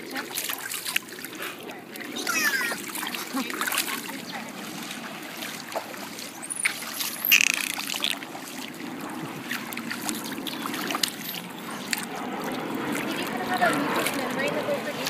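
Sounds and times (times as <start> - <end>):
pool water splashing and lapping: 0.0 - 15.0.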